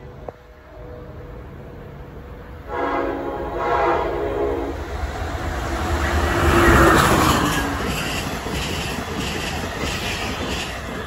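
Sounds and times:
passing train rumble: 0.0 - 11.0
train horn blasts: 2.7 - 4.8.

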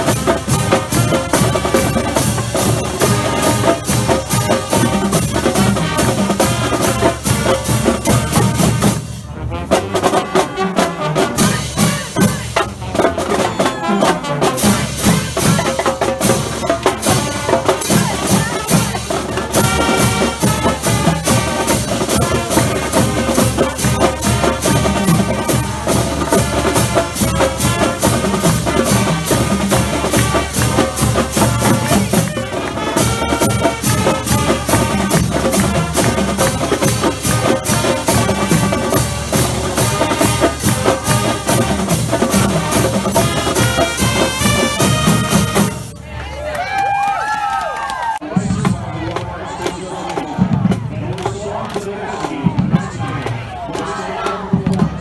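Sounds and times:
marching band brass: 0.0 - 46.3, 47.6 - 55.0
drumline steady beat: 0.0 - 46.4, 48.2 - 55.0.

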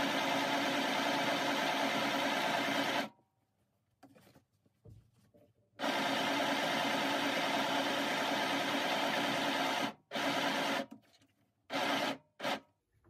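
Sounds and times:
electric sewing machine stitching: 0.0 - 3.1, 5.8 - 10.9, 11.7 - 12.6.

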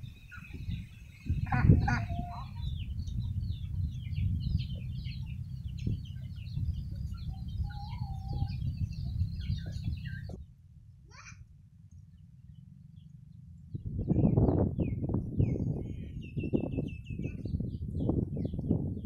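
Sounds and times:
poultry chirps and clucks: 0.0 - 10.4, 14.0 - 18.8
low rumble: 0.0 - 19.0
loud poultry call: 1.4 - 2.8.

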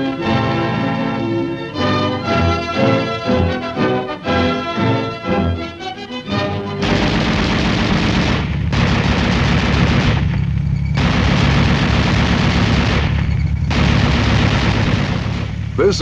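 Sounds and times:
low steady rumble: 6.8 - 16.0
machine gun automatic fire: 6.8 - 16.0.

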